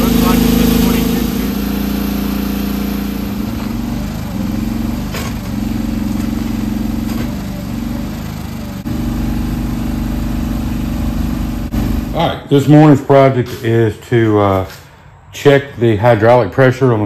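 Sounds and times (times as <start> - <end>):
excavator engine under load: 0.0 - 12.9.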